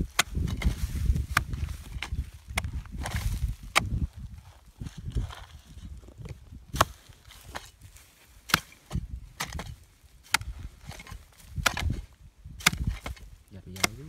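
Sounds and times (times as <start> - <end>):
soft low thuds: 0.0 - 14.0.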